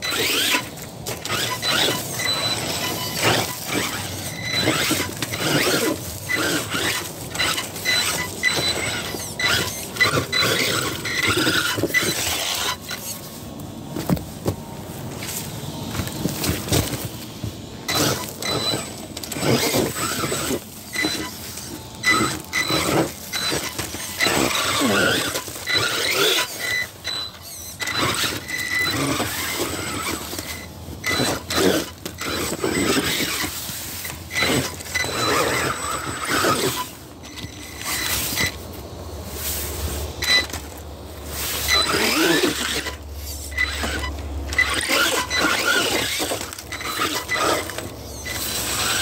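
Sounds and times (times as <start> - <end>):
electric motor whining: 0.0 - 49.0
tyres scraping and knocking on rock: 13.9 - 26.8.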